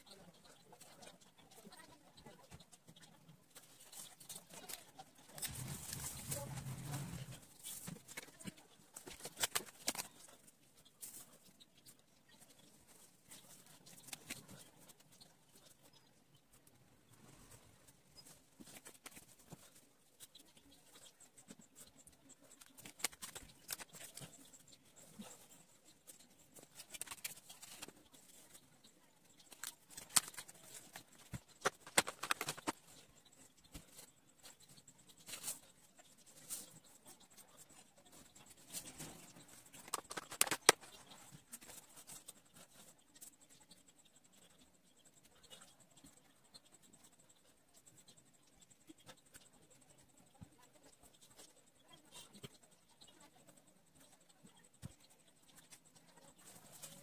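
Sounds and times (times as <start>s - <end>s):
markers scratching on paper: 0.0s - 16.7s, 17.8s - 57.0s
pen clicks: 29.5s - 32.8s, 39.8s - 40.9s.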